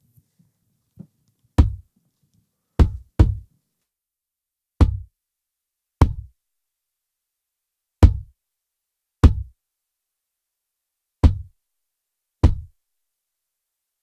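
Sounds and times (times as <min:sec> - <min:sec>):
kick drum hits: 0:01.6 - 0:01.9, 0:02.8 - 0:03.5, 0:04.8 - 0:05.1, 0:06.0 - 0:06.3, 0:08.0 - 0:08.3, 0:09.2 - 0:09.6, 0:11.2 - 0:11.6, 0:12.4 - 0:12.8.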